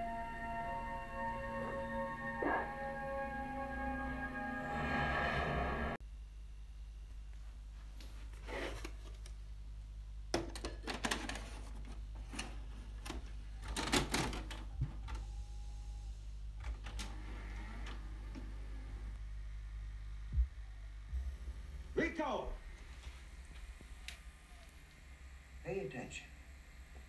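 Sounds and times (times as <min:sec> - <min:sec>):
faint mechanical whine: 0:11.7 - 0:27.0
steady low hum: 0:14.8 - 0:27.0.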